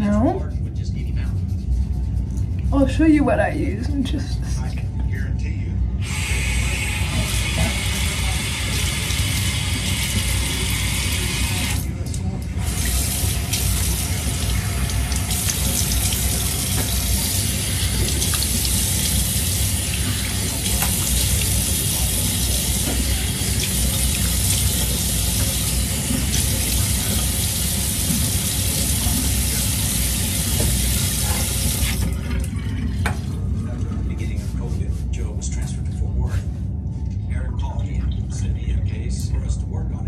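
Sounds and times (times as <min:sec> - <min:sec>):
tap water running into sink: 0:07.0 - 0:33.2.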